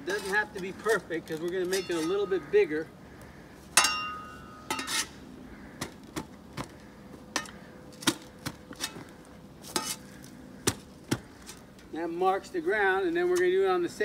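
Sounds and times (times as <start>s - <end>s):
metallic clang: 3.8s - 5.1s.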